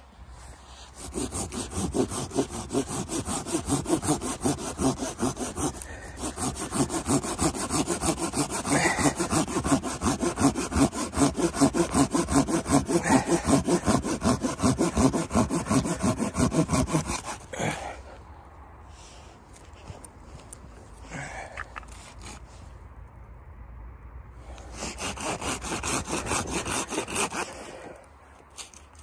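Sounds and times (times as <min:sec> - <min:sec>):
hand saw cutting wood: 0:00.7 - 0:17.9, 0:21.8 - 0:22.5, 0:24.6 - 0:29.0.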